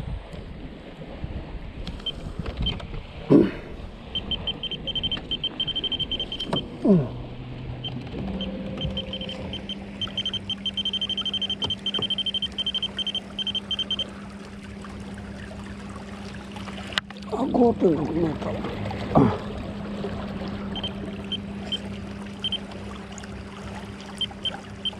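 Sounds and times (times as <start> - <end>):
short falling whines: 3.3 - 14.1
rapid high-pitched ticking: 4.2 - 6.6, 8.8 - 14.0.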